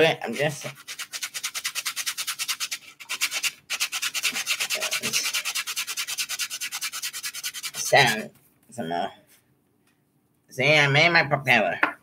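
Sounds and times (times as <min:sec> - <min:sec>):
sanding block rubbing wood: 0:00.3 - 0:08.3.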